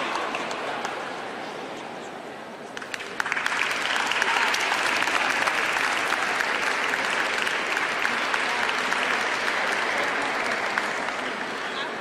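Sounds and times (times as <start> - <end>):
audience applauding: 2.8 - 12.0.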